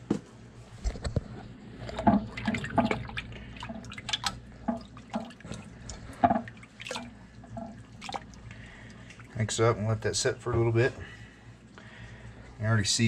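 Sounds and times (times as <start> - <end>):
water sloshing in a plastic bowl: 1.2 - 10.8.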